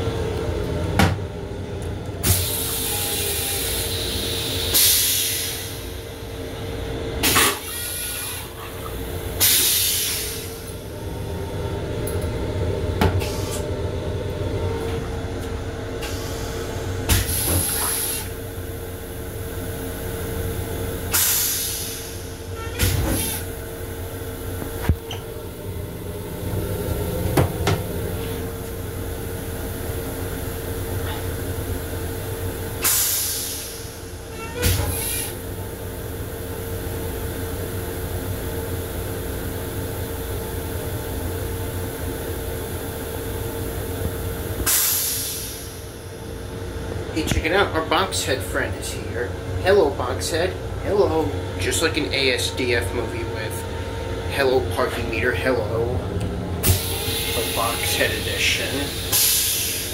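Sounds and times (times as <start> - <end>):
railcar rumble and hum: 0.0 - 59.9
toilet flushing: 56.6 - 59.9
hissing water spray and air: 58.9 - 59.9.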